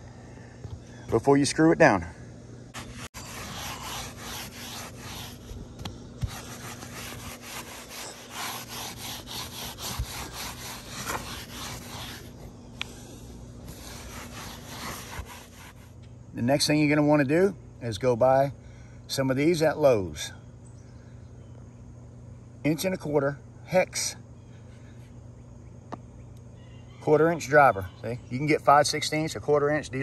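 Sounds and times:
rag scrubbing roof surface: 2.8 - 12.5, 13.6 - 16.0.

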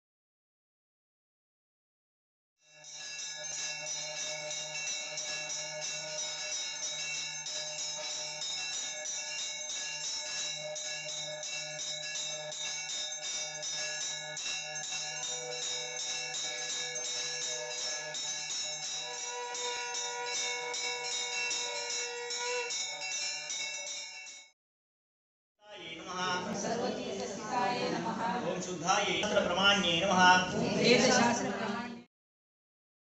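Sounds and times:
brass handbell ringing rapidly: 2.7 - 24.5.

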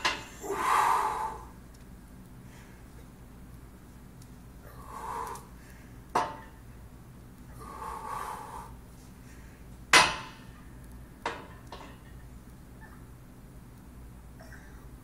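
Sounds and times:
heavy strained breathing: 4.6 - 5.8.

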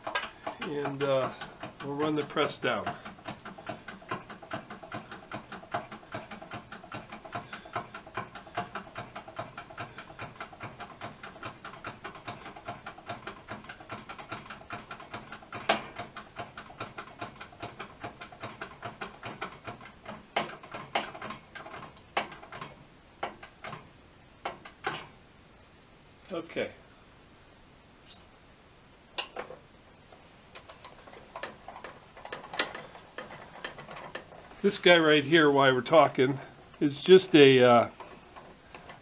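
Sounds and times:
hand-pump hydraulic press clicking: 0.0 - 23.8.

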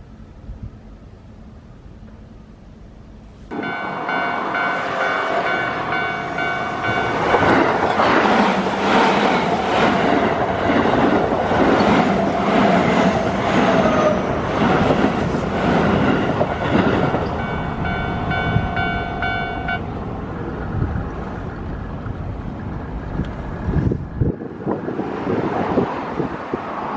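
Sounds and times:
level crossing warning bell: 3.5 - 8.1, 16.2 - 20.0
electric train wheels clacking: 3.5 - 20.8.

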